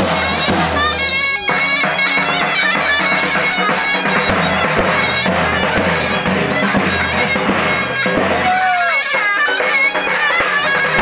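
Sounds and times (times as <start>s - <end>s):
reedy wind instrument melody: 0.0s - 11.0s.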